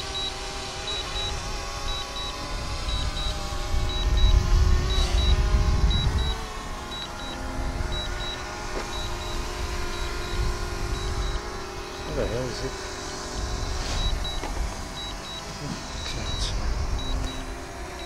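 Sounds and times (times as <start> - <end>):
drone propeller hum: 0.0 - 18.0
short high double beep: 3.9 - 9.4.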